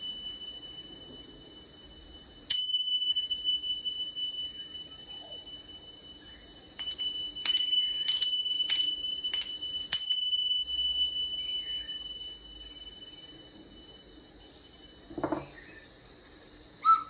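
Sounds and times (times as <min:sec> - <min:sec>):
steady high ringing tone: 0:00.0 - 0:16.8
small metal chime strikes: 0:02.5 - 0:05.6, 0:06.8 - 0:12.4.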